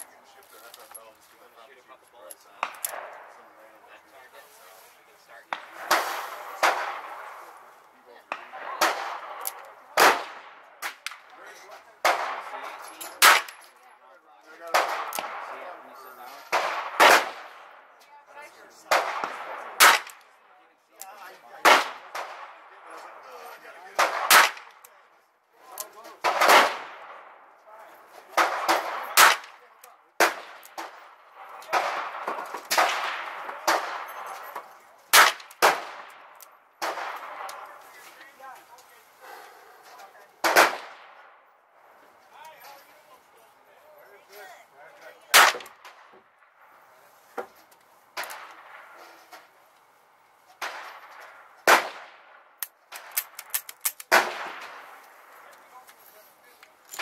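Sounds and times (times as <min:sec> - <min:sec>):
faint sharp cracks: 0:05.4 - 0:11.4, 0:18.9 - 0:20.3, 0:28.3 - 0:39.0, 0:45.3 - 0:46.8, 0:47.4 - 0:49.9, 0:50.5 - 0:57.0.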